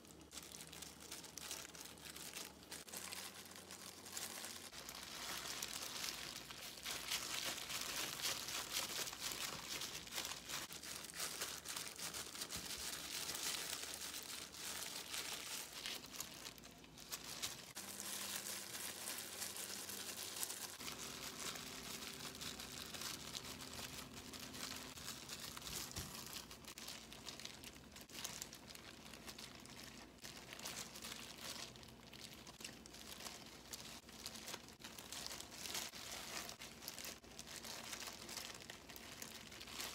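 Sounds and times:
plastic gloves crinkling: 0.0 - 39.9
seaweed sheets rustling: 0.0 - 39.9.

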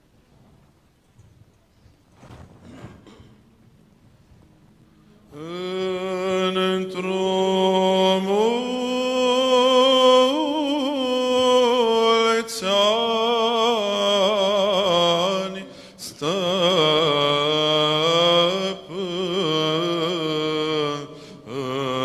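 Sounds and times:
man chanting a hymn: 5.3 - 22.0.

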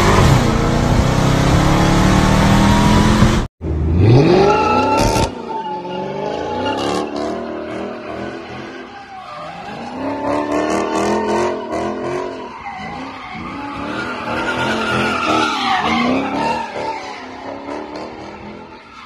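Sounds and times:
car engine revving: 0.0 - 5.4
tyres skidding on asphalt: 4.1 - 19.0.

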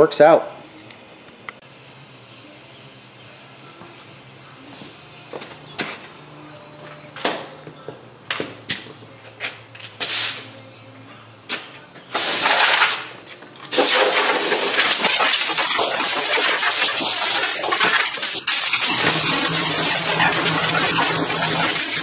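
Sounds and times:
power tool cutting steel: 13.7 - 22.0.

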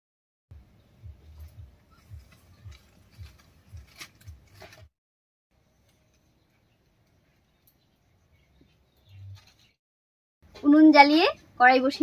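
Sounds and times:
sticks cracking: 2.2 - 4.9.

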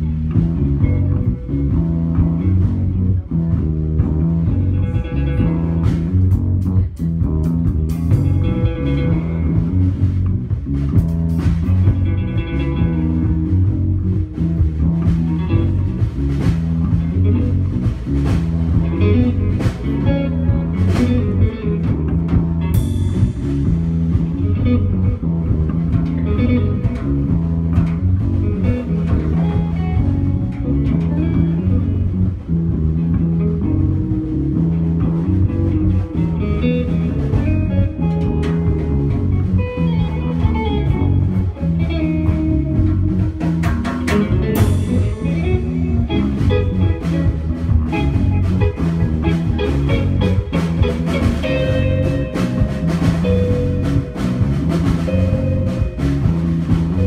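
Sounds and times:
drum kit: 0.0 - 57.0
electric bass: 0.0 - 57.0
electric guitar: 0.0 - 57.0.

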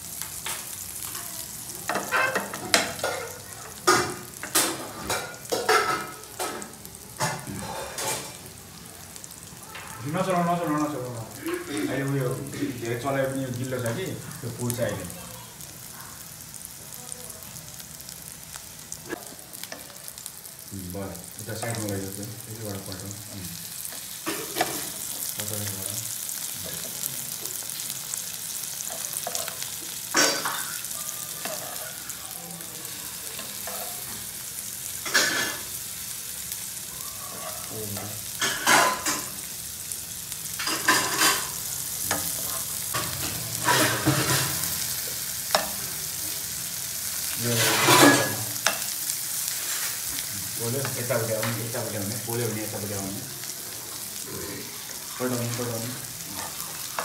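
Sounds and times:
food sizzling in hot oil: 0.0 - 57.0
metal spoon scraping a pan: 1.9 - 6.6, 40.6 - 44.9, 47.2 - 50.1.

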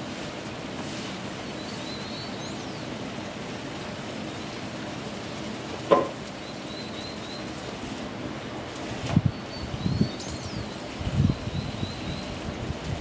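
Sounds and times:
outdoor background hiss: 0.0 - 13.0
small birds chirping: 1.4 - 3.4, 6.3 - 7.8, 9.2 - 12.4.

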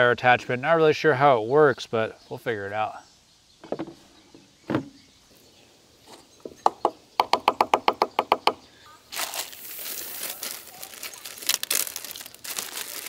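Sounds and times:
plastic bag crinkling: 9.1 - 13.0.

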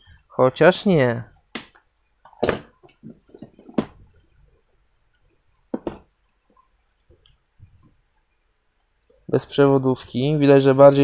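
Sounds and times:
headset and packaging clicks and taps: 1.4 - 4.0.

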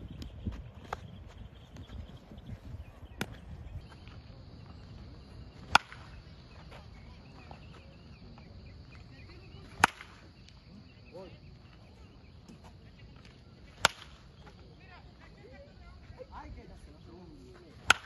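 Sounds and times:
bat cracking ball: 5.6 - 6.2, 9.8 - 10.2, 13.8 - 14.2.

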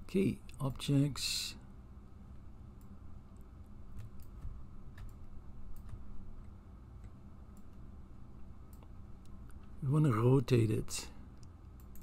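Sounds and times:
low steady hum: 0.0 - 12.0
computer mouse clicks: 3.9 - 7.8, 11.4 - 12.0.

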